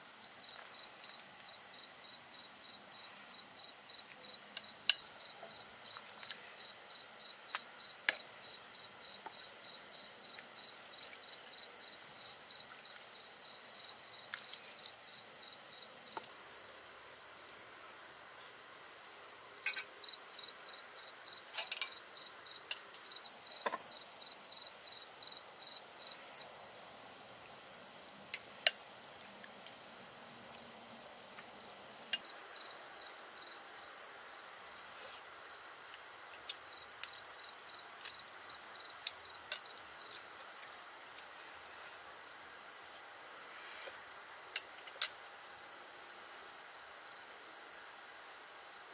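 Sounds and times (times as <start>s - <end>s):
crickets chirping: 0.0s - 48.9s
high insect hum: 0.0s - 48.9s.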